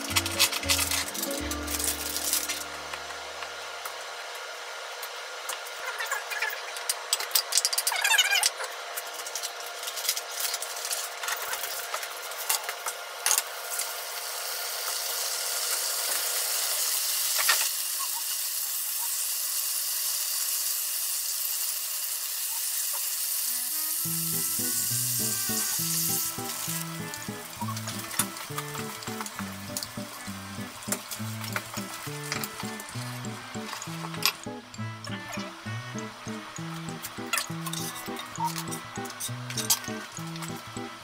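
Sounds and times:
background music: 0:00.0 - 0:03.0, 0:23.6 - 0:41.0
food sizzling in a pan: 0:13.5 - 0:40.8.

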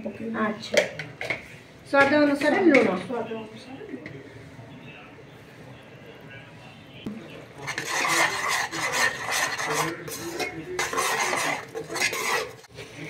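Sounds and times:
spoon scraping cooker bottom: 0:07.6 - 0:12.7.

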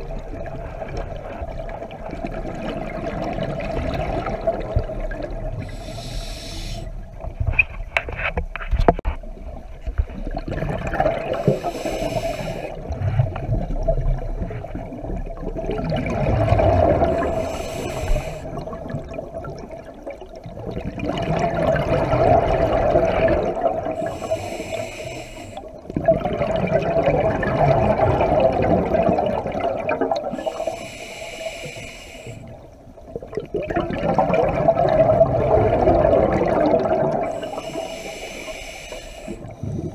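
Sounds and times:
exhaled bubbles gurgling: 0:00.0 - 0:07.4, 0:09.3 - 0:39.9
regulator hissing inhales: 0:05.7 - 0:07.0, 0:11.4 - 0:12.8, 0:17.2 - 0:18.6, 0:24.0 - 0:25.7, 0:30.3 - 0:32.6, 0:37.3 - 0:39.6.

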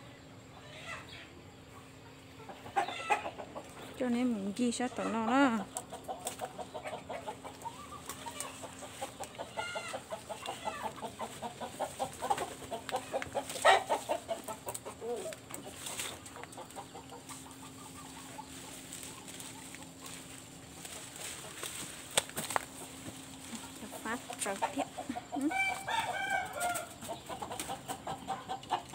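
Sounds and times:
faint steady hum: 0:00.0 - 0:28.9
chickens clucking: 0:00.2 - 0:28.9
chicken calls: 0:00.5 - 0:28.9.

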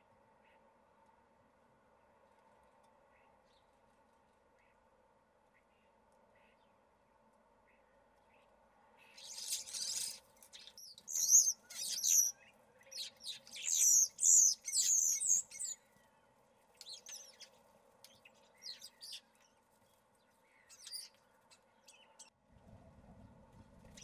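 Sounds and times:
starlings whistling and chirping: 0:09.2 - 0:15.8.

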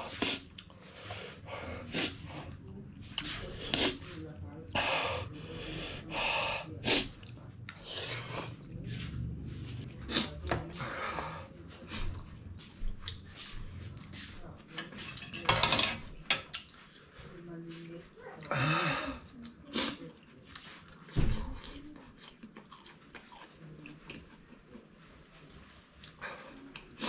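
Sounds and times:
cutlery clinking on ceramic plate: 0:14.8 - 0:16.5.

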